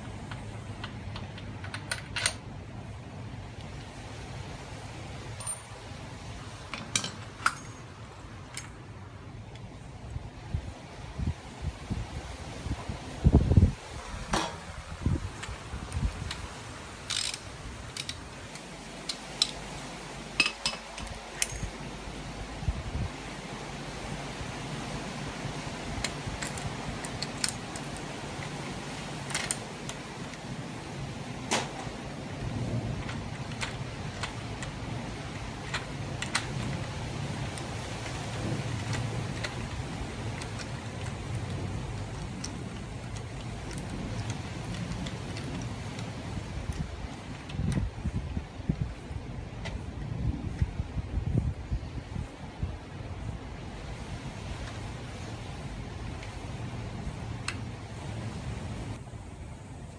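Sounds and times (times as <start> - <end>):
steady low hiss: 0.0 - 59.9
steady low rumble: 0.0 - 59.9
small metal parts clinking: 5.4 - 5.8, 6.7 - 8.8, 17.1 - 19.6, 20.4 - 21.8
ratchet clicks: 17.1 - 19.6.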